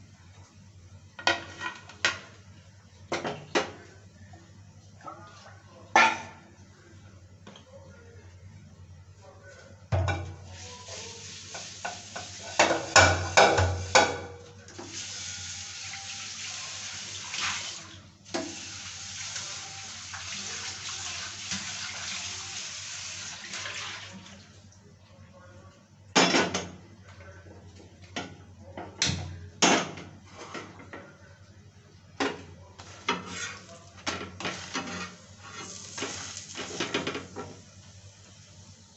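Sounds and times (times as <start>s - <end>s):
water tap running: 10.5s - 14.1s, 14.8s - 24.5s, 35.6s - 37.2s
dishes and utensils clattering: 11.5s - 14.4s, 32.2s - 37.6s.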